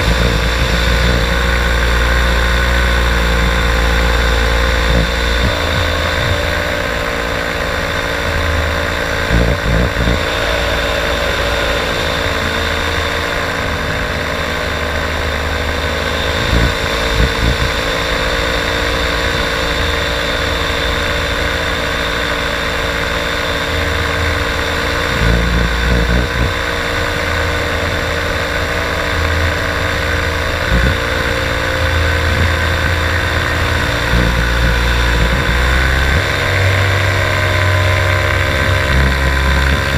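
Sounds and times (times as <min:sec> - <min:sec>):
paramotor engine and propeller: 0:00.0 - 0:39.9
wind buffeting microphone: 0:08.3 - 0:18.3.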